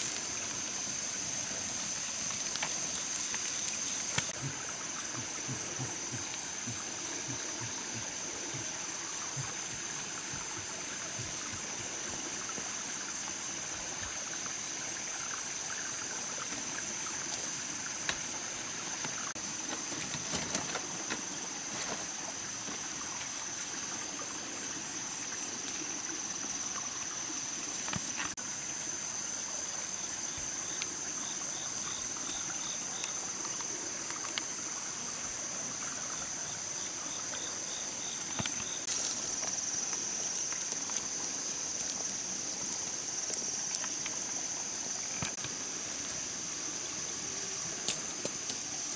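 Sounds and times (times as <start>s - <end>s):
high-pitched insect drone: 0.0s - 19.4s
water trickling over rocks: 0.0s - 48.9s.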